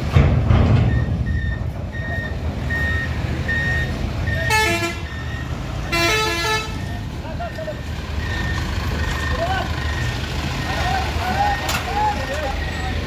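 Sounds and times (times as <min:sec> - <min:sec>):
diesel truck engine running: 0:00.0 - 0:13.0
reversing beeper: 0:00.8 - 0:05.9, 0:07.4 - 0:13.0
multi-tone vehicle horn tune: 0:04.4 - 0:05.1, 0:05.9 - 0:06.9.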